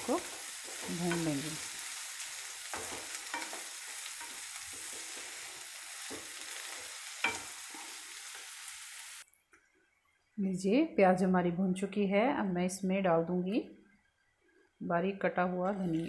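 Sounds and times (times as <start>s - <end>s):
onions sizzling in hot oil: 0.0s - 9.2s.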